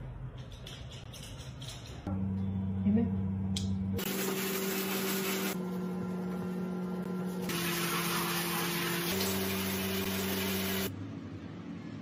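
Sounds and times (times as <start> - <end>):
low hum: 2.1 - 4.0
shower water spraying: 4.0 - 5.6, 7.4 - 10.9.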